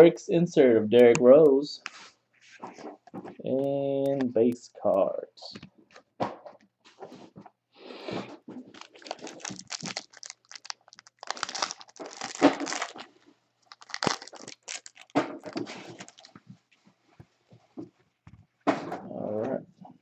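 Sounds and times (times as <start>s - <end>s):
wrapper crinkling and tearing: 8.6s - 16.4s.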